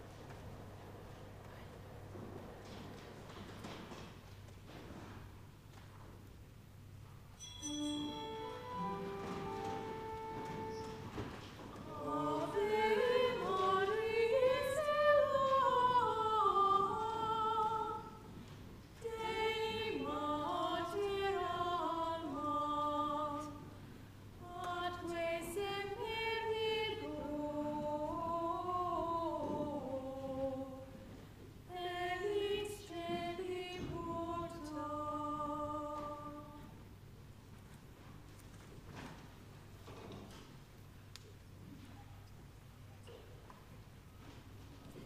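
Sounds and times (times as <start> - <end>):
unaccompanied voices singing: 8.2 - 18.4, 19.0 - 23.8, 24.4 - 36.8.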